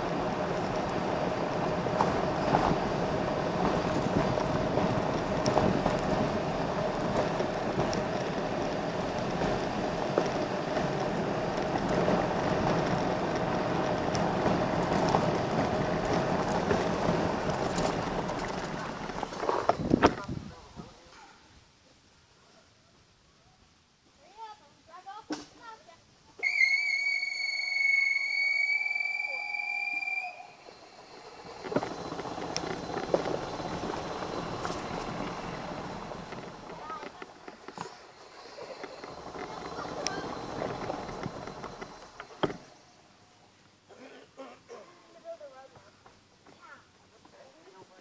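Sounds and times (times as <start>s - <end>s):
tyres crunching on gravel: 0.0s - 20.4s, 31.2s - 42.7s
faint steady whine: 25.9s - 48.0s.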